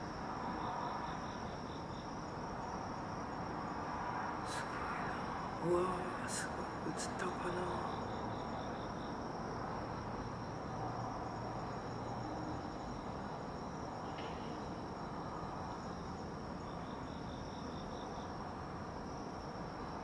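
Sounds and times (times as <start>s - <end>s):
crickets trilling: 0.0s - 20.0s
low background noise: 0.0s - 20.0s.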